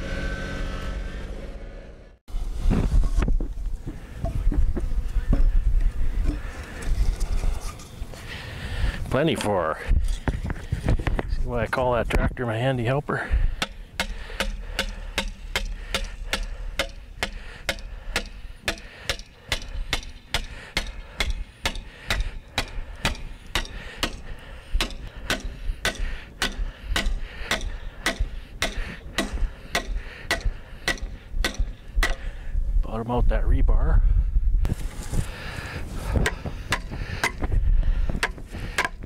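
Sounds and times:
hammer striking metal pin: 13.6 - 24.2, 24.8 - 32.2.

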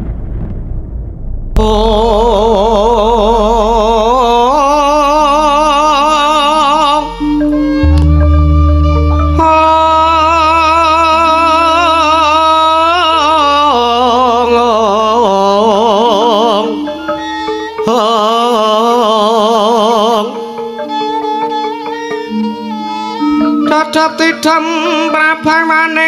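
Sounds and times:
low drone: 0.0 - 15.0
man singing into a microphone: 1.6 - 7.7, 8.8 - 20.6, 23.4 - 26.0
gamelan accompaniment: 2.2 - 26.0.

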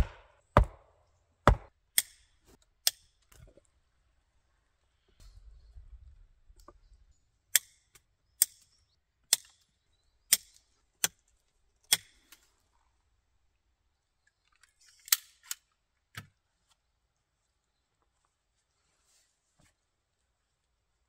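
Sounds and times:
axe chopping wood: 0.0 - 2.2.

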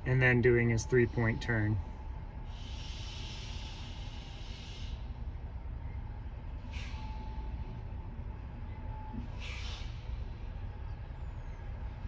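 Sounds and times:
air hiss: 2.5 - 5.2, 9.4 - 10.1.

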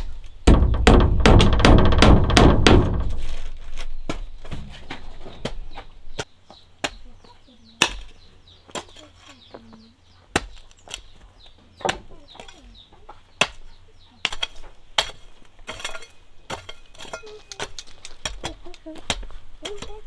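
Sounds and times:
small birds chirping: 0.0 - 0.7, 3.8 - 20.0
sharp knocks: 0.4 - 3.2
chickens clucking: 4.5 - 14.8, 17.0 - 20.0.

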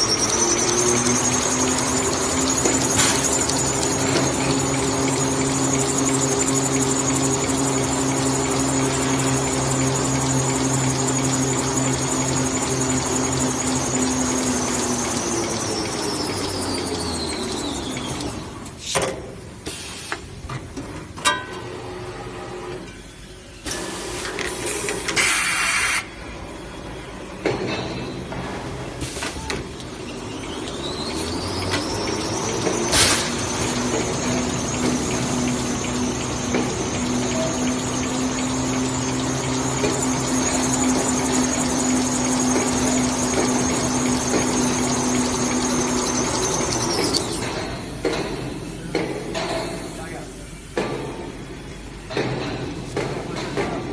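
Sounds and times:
rewinding machine running: 0.0 - 18.8, 29.6 - 53.9
sharp mechanical knocks: 31.6 - 49.9.

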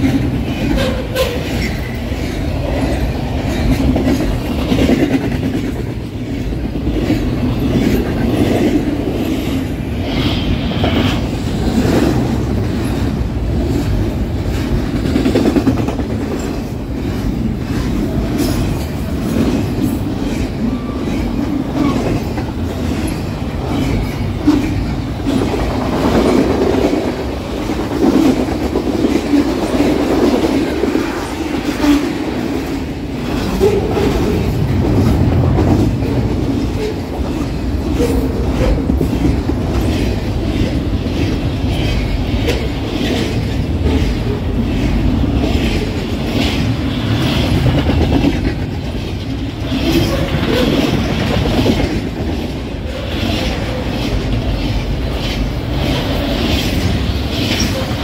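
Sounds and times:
freight train rumble: 0.0 - 58.0.

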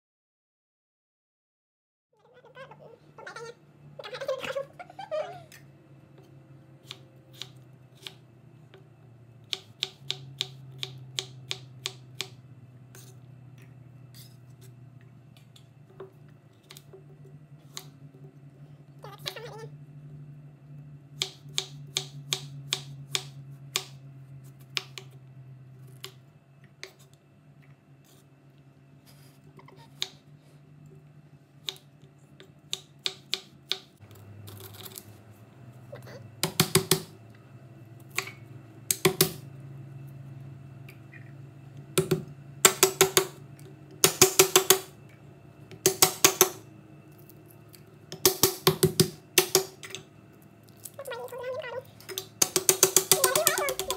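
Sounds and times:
knife chopping on wooden board: 44.0 - 44.9.

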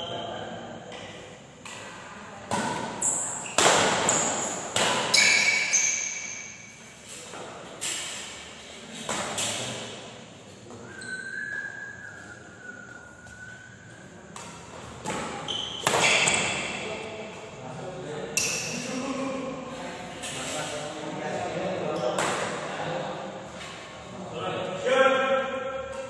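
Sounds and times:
rackets smacking shuttlecock: 1.6 - 6.6, 14.3 - 16.8.

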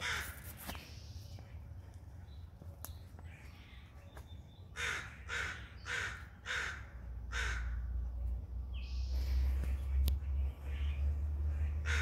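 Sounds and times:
crow cawing: 0.0 - 0.4, 4.7 - 7.9, 11.6 - 12.0.

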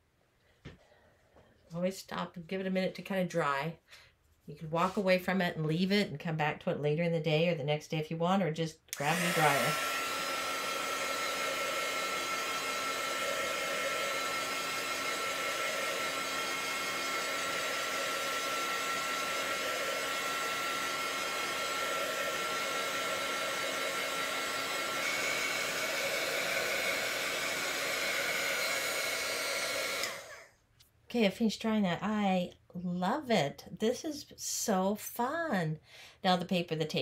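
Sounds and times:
heat tool blowing air: 9.0 - 30.5.

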